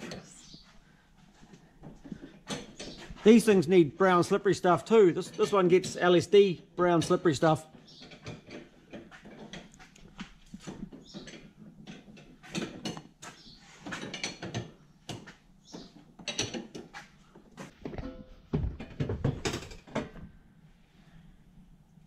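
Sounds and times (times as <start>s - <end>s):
hand tools clinking on metal: 2.4s - 9.7s.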